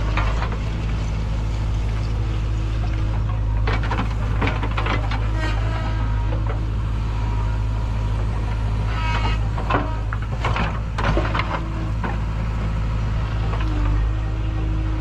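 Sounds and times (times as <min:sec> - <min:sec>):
diesel engine running: 0:00.0 - 0:15.0.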